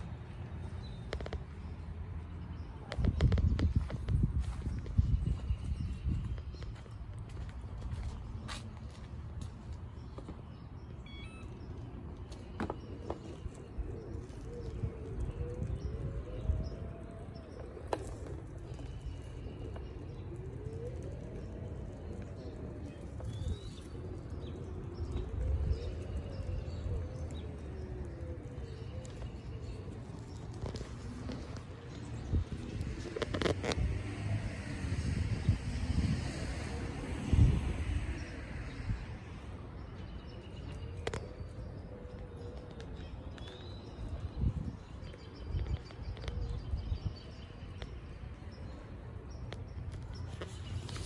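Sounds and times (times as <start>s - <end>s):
wheels rumbling on concrete: 0.0s - 51.0s
hoverboard motors whining: 11.0s - 47.3s
dove cooing: 11.1s - 38.7s, 40.0s - 47.8s.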